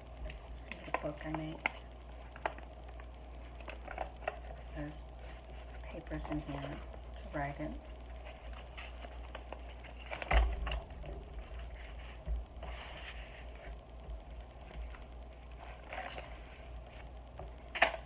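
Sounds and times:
paper rustling and scraping: 0:08.1 - 0:13.8, 0:14.5 - 0:18.0.

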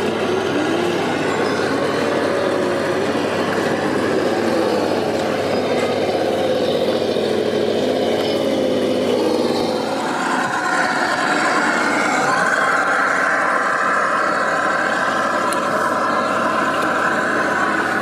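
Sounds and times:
electric motor whining: 0:00.0 - 0:18.0
steady background rush: 0:00.0 - 0:18.0.

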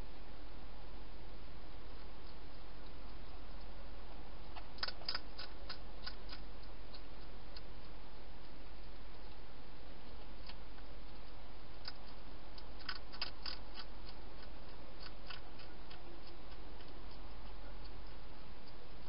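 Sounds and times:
low hum: 0:00.0 - 0:19.0
hedgehog crunching dry food: 0:04.5 - 0:09.4, 0:10.4 - 0:19.0
sharp clicks: 0:04.5 - 0:09.4, 0:10.1 - 0:18.8.

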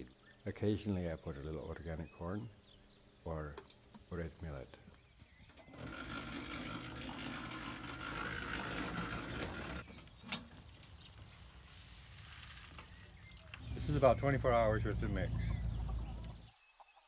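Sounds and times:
cement mixer running: 0:05.5 - 0:10.0
faint hiss: 0:11.3 - 0:14.6.

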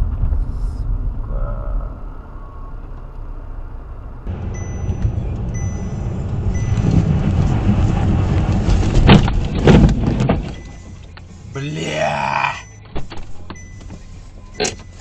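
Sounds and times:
car driving rumble: 0:00.0 - 0:15.0
faint high beeps: 0:04.3 - 0:07.0, 0:10.5 - 0:11.2, 0:12.1 - 0:12.9, 0:13.5 - 0:15.0
car crashing into van: 0:08.6 - 0:10.6.

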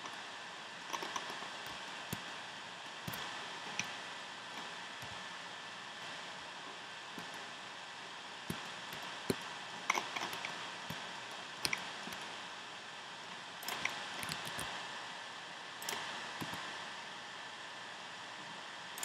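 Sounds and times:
steady hiss: 0:00.0 - 0:19.0
mouse and keyboard clicking: 0:00.9 - 0:02.2, 0:03.1 - 0:04.0, 0:08.5 - 0:11.0, 0:11.6 - 0:12.2, 0:13.6 - 0:14.7, 0:15.8 - 0:16.6.

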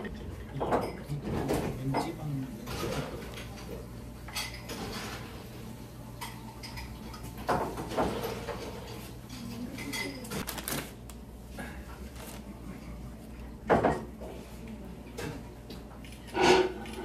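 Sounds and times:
tableware clinking and knocking: 0:00.5 - 0:05.5, 0:06.2 - 0:10.5, 0:13.7 - 0:14.2, 0:16.0 - 0:17.0.

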